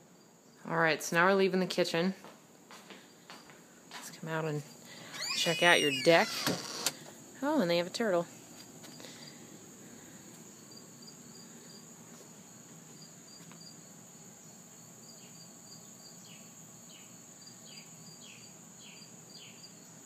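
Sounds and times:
insects trilling: 0:04.7 - 0:20.0.

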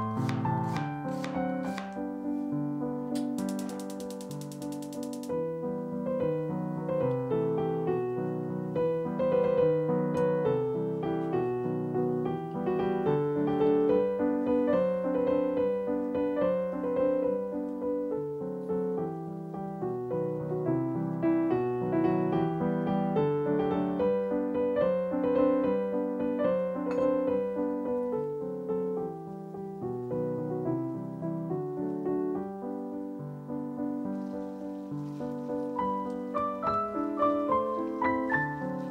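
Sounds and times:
gentle piano music: 0:00.0 - 0:38.9
rapid clicks: 0:03.2 - 0:05.4.

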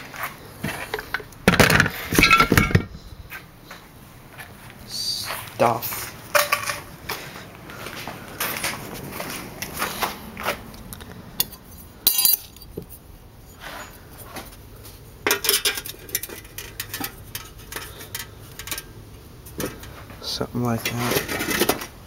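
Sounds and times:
metal pieces clinking: 0:01.8 - 0:02.9, 0:11.4 - 0:12.7.

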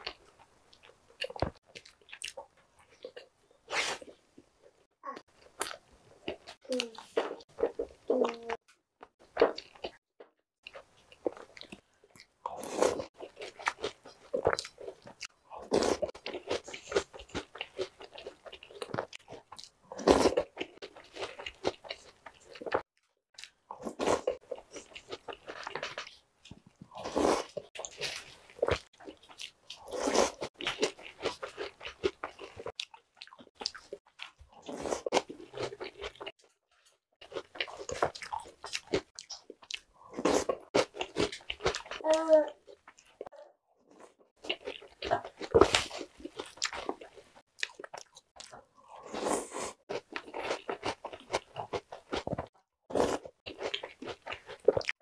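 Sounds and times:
crunchy chewing: 0:37.2 - 0:42.0.

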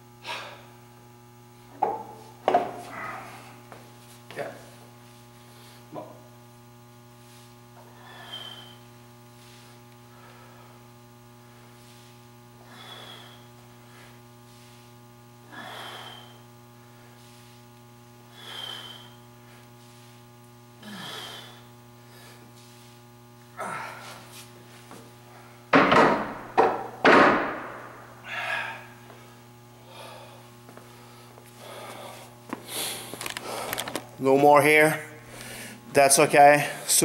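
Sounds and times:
steady electrical hum: 0:00.0 - 0:37.0
man breathing hard: 0:00.2 - 0:00.8, 0:02.8 - 0:03.8, 0:07.2 - 0:17.7, 0:18.3 - 0:20.2, 0:20.8 - 0:24.5, 0:27.9 - 0:34.0, 0:35.2 - 0:35.9.

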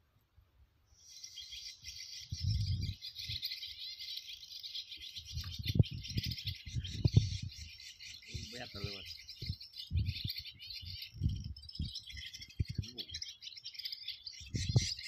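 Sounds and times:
swallow calls from loudspeaker: 0:05.4 - 0:13.6.

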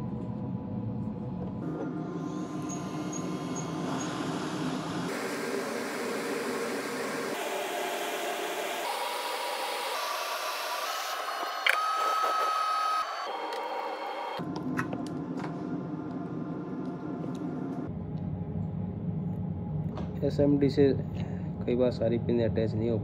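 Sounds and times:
hot-air station hissing: 0:02.1 - 0:14.4.

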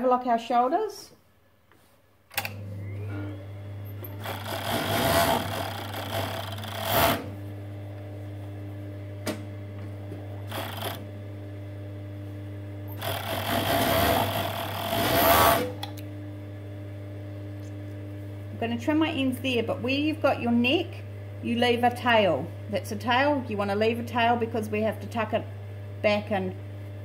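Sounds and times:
overlocker motor humming: 0:02.4 - 0:18.6
overlocker stitching fabric: 0:04.2 - 0:07.3, 0:10.5 - 0:11.0, 0:13.0 - 0:15.8.

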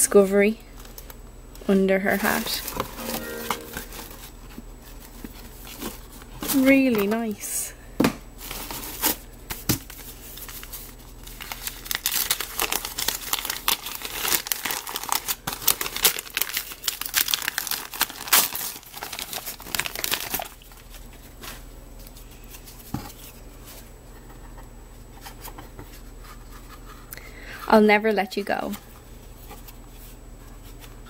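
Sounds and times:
wrapping paper tearing and crumpling: 0:10.0 - 0:22.8.

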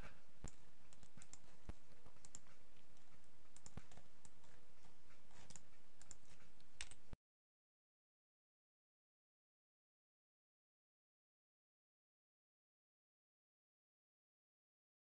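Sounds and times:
computer mouse clicks: 0:00.4 - 0:07.2.

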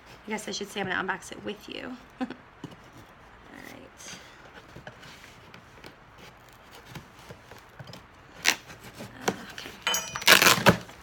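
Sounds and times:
cardboard tearing rasp: 0:05.0 - 0:09.5, 0:10.2 - 0:11.0
cardboard ripping: 0:08.3 - 0:09.5, 0:10.2 - 0:11.0.

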